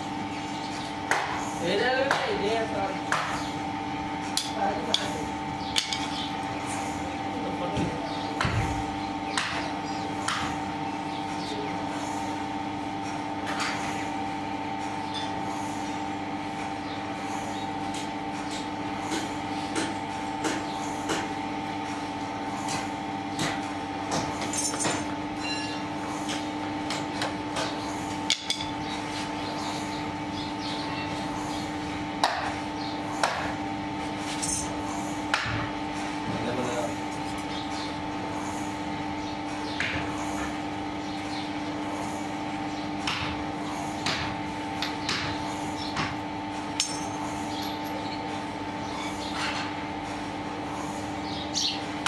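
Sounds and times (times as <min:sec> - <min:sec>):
steady hum: 0:00.0 - 0:52.0.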